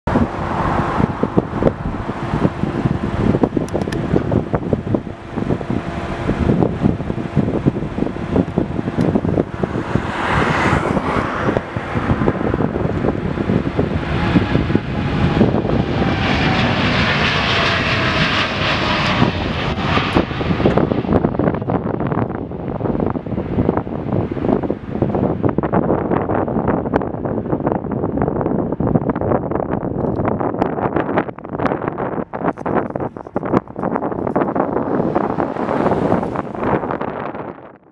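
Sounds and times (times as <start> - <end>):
road vehicle passing: 0.1 - 18.6, 34.3 - 37.5
jet engine whine: 0.1 - 37.9
jet engines roaring on takeoff: 0.1 - 37.9.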